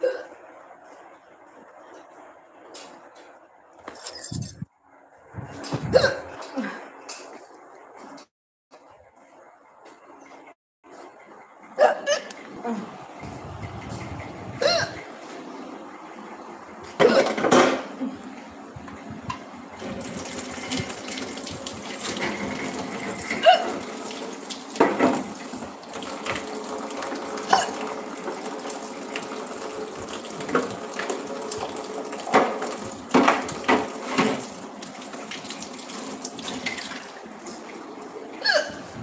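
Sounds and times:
woman hiccuping: 5.9s - 6.3s, 11.8s - 12.9s, 14.6s - 15.0s, 23.4s - 23.8s, 38.4s - 38.9s.

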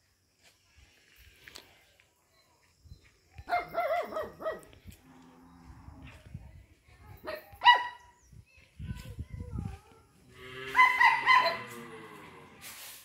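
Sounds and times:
dog barking: 3.5s - 4.7s, 7.3s - 8.0s, 10.8s - 11.8s.

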